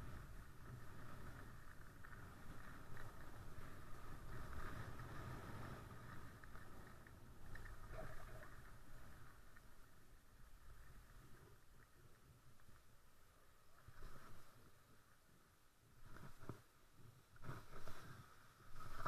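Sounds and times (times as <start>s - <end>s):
skis scraping on snow: 0.0s - 8.2s, 16.0s - 19.0s
wind rumbling on camera: 0.0s - 19.0s.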